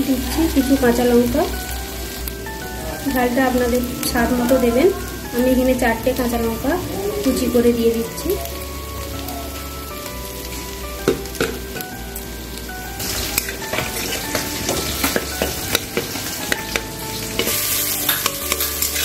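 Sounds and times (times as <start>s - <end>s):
vegetables sizzling in oil: 0.0s - 19.0s
metal spatula scraping pan: 13.0s - 19.0s.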